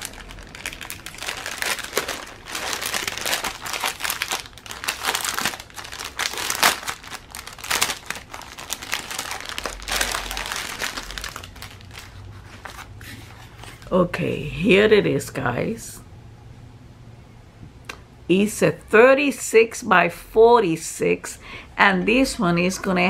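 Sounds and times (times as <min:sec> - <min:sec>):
packaging crinkling and rustling: 0:00.0 - 0:13.9.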